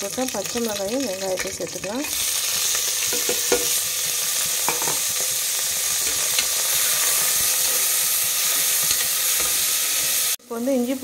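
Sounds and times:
onions sizzling in oil: 0.0 - 11.0
spoon scraping and clinking pot: 3.1 - 3.8, 6.0 - 10.2.

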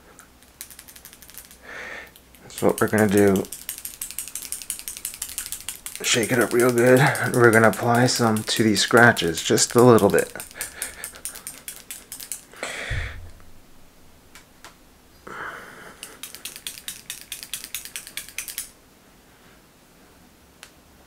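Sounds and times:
nail polish ball rattling: 0.3 - 12.6, 16.0 - 18.8
dull thump: 12.9 - 13.9.

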